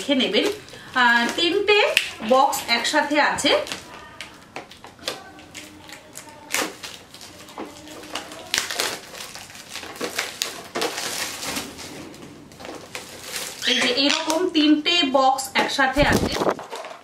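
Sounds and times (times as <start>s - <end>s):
plastic wrapping crinkling: 0.0s - 14.8s, 15.6s - 17.0s.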